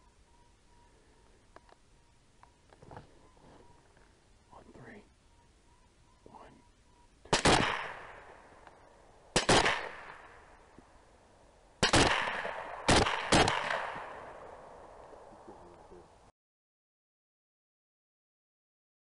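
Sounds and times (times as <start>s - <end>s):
rifle shots echoing: 7.3s - 10.7s, 11.8s - 15.2s.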